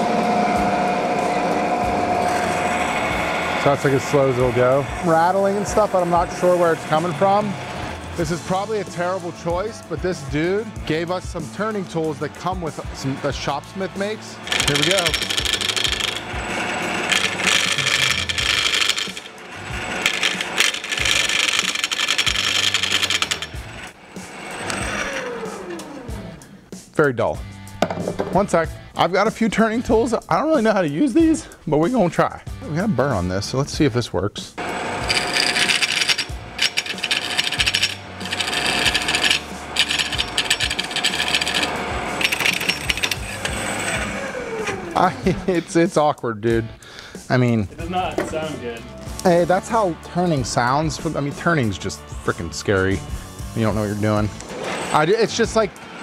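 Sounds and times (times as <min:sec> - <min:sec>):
lathe motor hum: 0:00.0 - 0:26.6, 0:34.6 - 0:45.6, 0:54.3 - 0:56.0
gouge scraping spinning wood: 0:01.9 - 0:09.6, 0:10.4 - 0:26.3, 0:34.6 - 0:45.6, 0:53.6 - 0:56.0.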